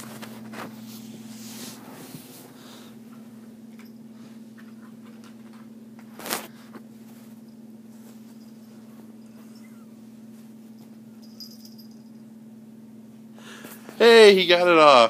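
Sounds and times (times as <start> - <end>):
cat scuffling on carpet: 0.0 - 3.4, 4.2 - 11.1
steady low hum: 0.0 - 15.0.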